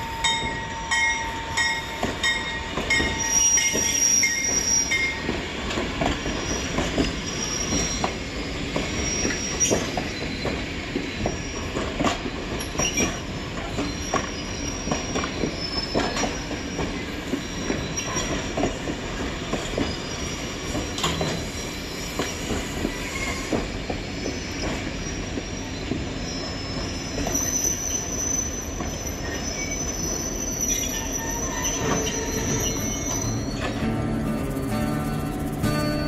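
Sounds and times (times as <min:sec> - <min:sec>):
train wheels clanking over rail joints: 0:00.2 - 0:20.0, 0:20.6 - 0:26.1
high wheel squeal: 0:02.9 - 0:05.2, 0:06.4 - 0:08.3, 0:08.9 - 0:10.5, 0:24.4 - 0:36.0.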